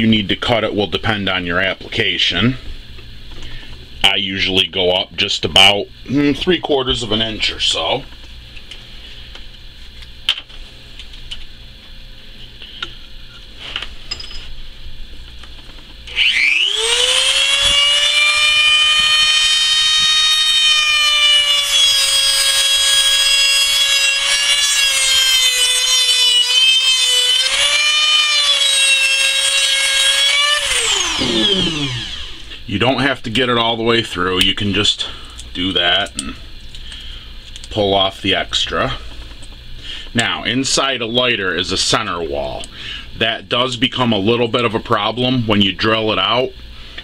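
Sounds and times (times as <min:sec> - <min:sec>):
rotary tool high whine: 0:16.0 - 0:32.6.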